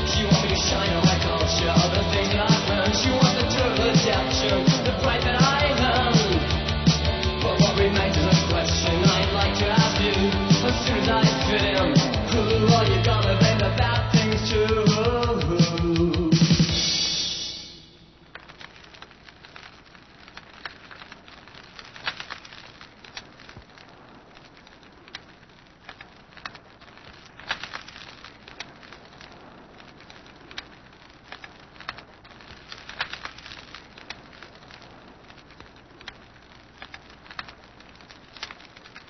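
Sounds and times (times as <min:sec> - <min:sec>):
music: 0:00.0 - 0:18.2
record hiss with crackles: 0:00.0 - 0:39.0.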